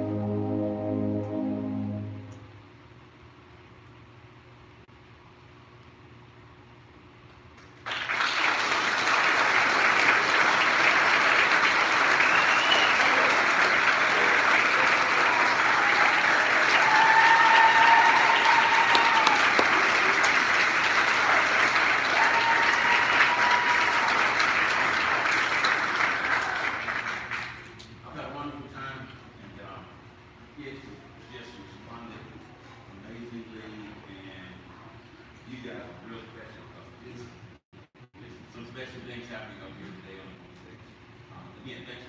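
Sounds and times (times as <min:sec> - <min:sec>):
audience applause: 0:07.8 - 0:27.7
audience cheering: 0:09.3 - 0:27.3.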